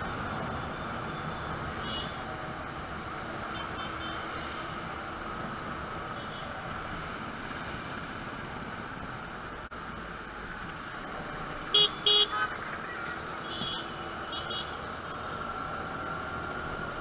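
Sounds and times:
vehicle horn honks: 11.8s - 12.5s.

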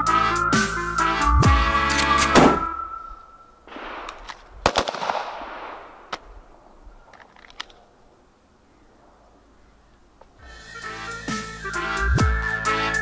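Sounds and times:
pistol shots: 2.0s - 2.8s, 3.7s - 6.6s.

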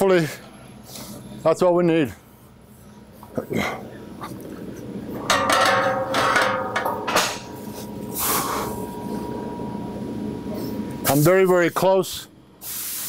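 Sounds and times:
metallic ringing: 5.1s - 11.0s
metal tube knocking and scraping: 5.2s - 7.6s.

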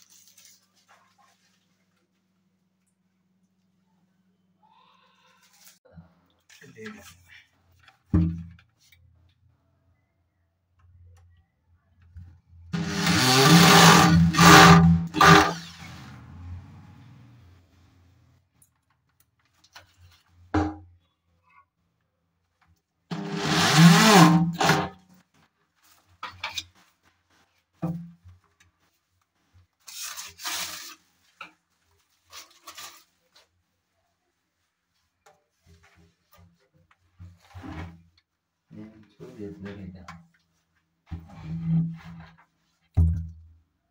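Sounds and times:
electric drill driving a screw: 12.8s - 16.0s, 23.1s - 24.9s
cabinet door hinges rubbing and knocking: 23.1s - 24.9s.

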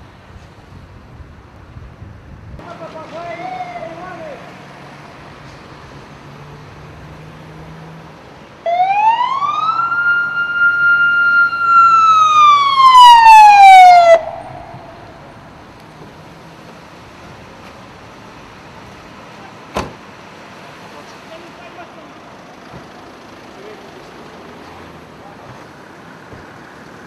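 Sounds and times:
police siren wail: 3.3s - 4.6s, 8.6s - 15.8s.

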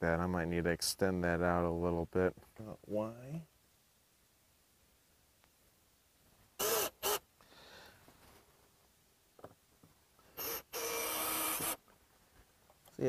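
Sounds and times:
cordless drill driving screw: 6.6s - 7.2s, 10.4s - 11.8s.

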